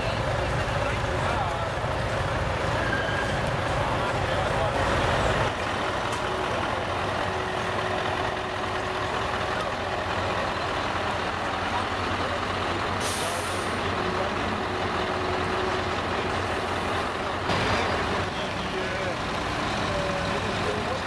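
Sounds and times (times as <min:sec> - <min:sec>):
diesel engines running: 0:00.0 - 0:21.0
trucks rolling past: 0:00.0 - 0:21.0
air-brake hiss: 0:13.0 - 0:13.8.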